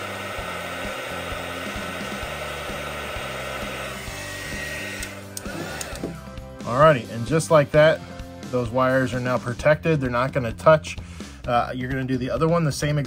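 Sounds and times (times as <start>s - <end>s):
heat gun blowing: 0.0s - 6.3s.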